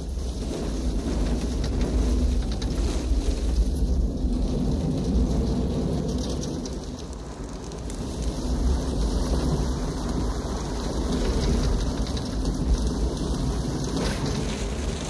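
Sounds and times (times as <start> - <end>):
mine cart rumbling on track: 0.0 - 15.0.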